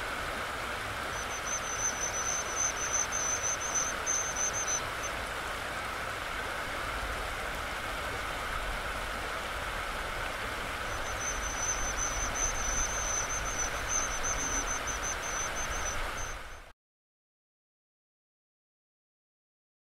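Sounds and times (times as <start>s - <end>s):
stream water rushing: 0.0s - 16.7s
nestlings begging calls: 1.1s - 5.1s, 10.8s - 16.6s.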